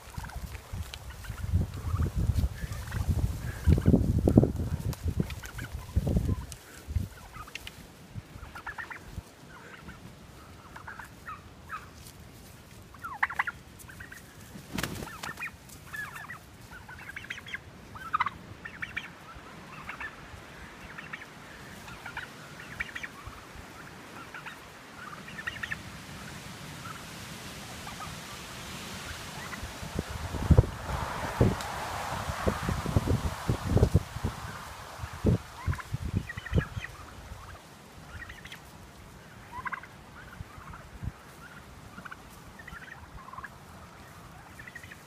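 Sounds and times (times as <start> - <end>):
turkeys calling: 0.0 - 30.8, 33.0 - 45.0.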